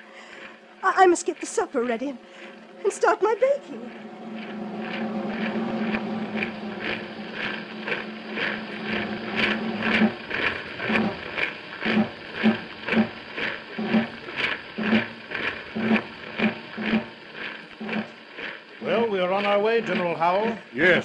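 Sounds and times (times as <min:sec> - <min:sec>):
held low note: 0:01.7 - 0:13.4.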